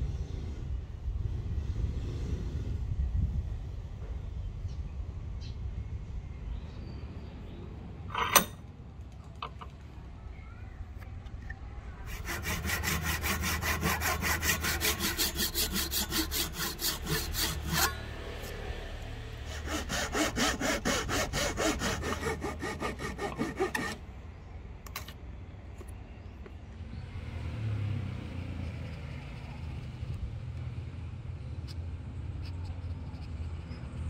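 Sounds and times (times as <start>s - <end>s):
hand saw cutting wood: 12.1s - 24.0s.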